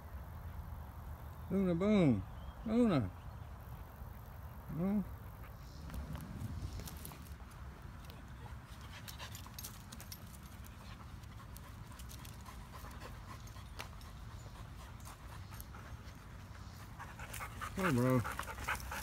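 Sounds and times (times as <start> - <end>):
dogs panting: 3.1 - 19.0
light clicks and scuffs: 5.4 - 19.0.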